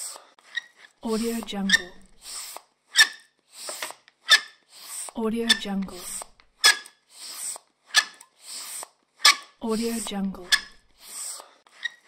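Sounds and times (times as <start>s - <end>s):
squeaky hand air pump: 0.0s - 12.0s.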